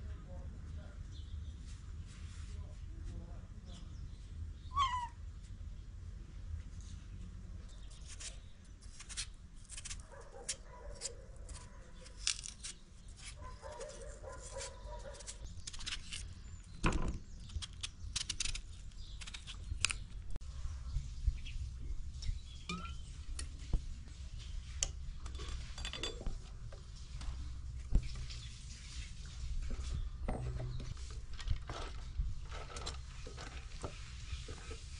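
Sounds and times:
knife peeling and slicing potatoes: 7.9 - 20.4.

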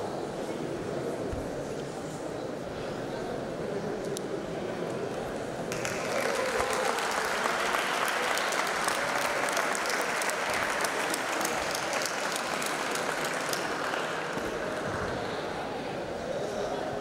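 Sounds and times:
audience applauding: 5.7 - 15.1.

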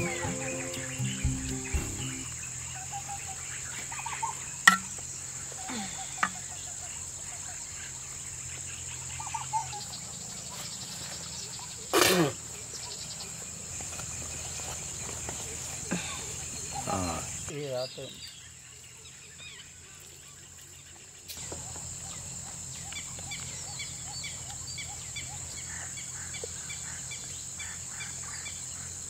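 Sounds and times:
insects chirring: 0.0 - 20.7.

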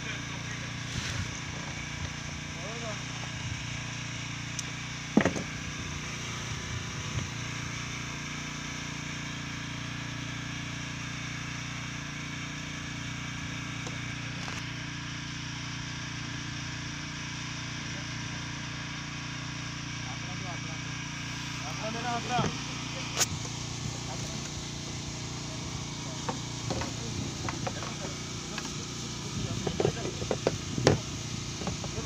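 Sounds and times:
boat engine drone: 0.0 - 32.0
small knocks: 5.1 - 5.5.

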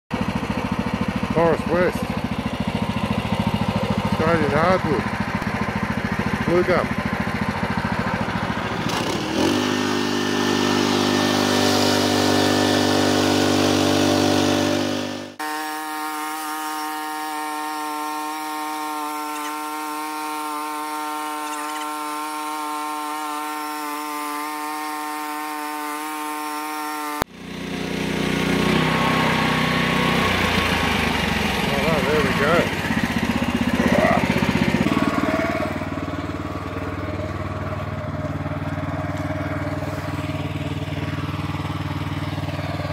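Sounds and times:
bandsaw mill engine and blade: 0.1 - 42.9.

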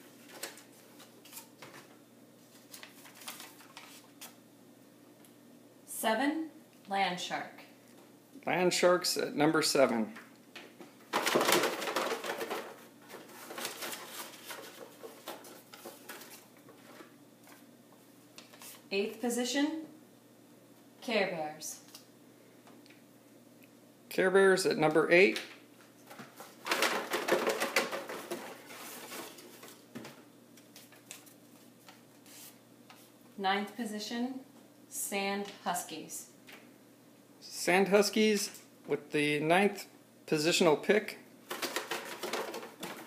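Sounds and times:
paper slips rustling in carton: 11.1 - 17.1, 26.4 - 29.8.

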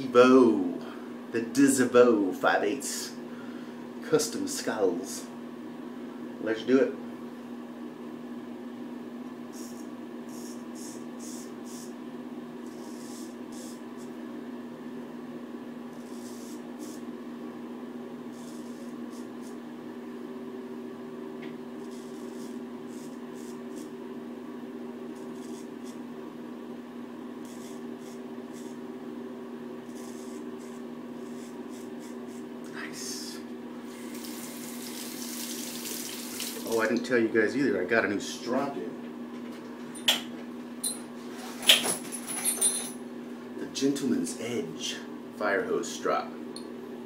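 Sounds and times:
steady low hum: 0.0 - 47.0
straight razor scraping stubble: 27.4 - 28.8.

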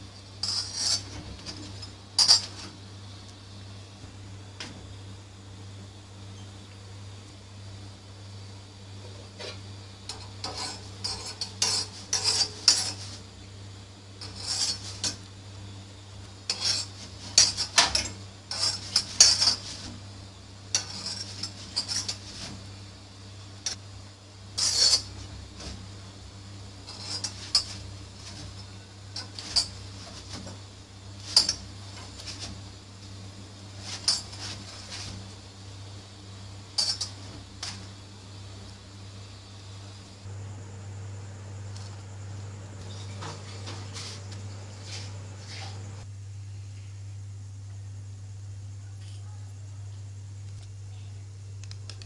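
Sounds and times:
steady low hum: 0.0 - 52.0
metal utensil scraping iron griddle: 0.4 - 2.8, 9.1 - 13.4, 14.2 - 15.3, 16.4 - 22.7, 24.5 - 35.4, 36.7 - 37.9.

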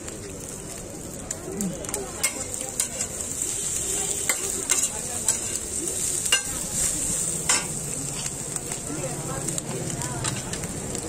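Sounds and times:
tripe sizzling on a griddle: 0.0 - 11.0
metal spatula scraping griddle: 2.2 - 8.8.

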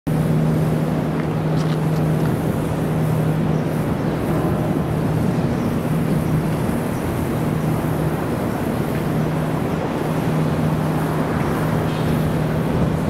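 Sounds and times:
rumble of passing vehicles: 0.1 - 13.0.

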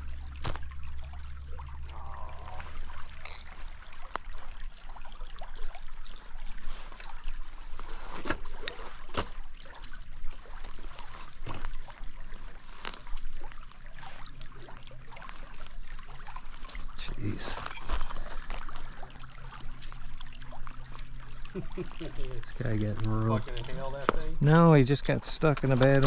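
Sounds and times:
stream water running and splashing: 0.0 - 26.0.

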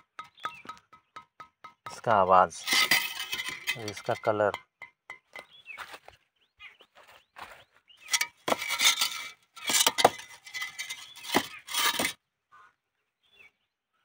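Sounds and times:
bricks clinking and scraping: 0.0 - 5.6, 8.1 - 12.2.

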